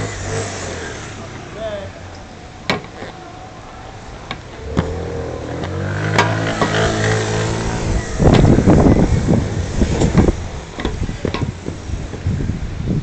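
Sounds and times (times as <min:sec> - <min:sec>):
loud rough rumble: 0:00.0 - 0:13.0
vehicle engine running: 0:04.0 - 0:12.4.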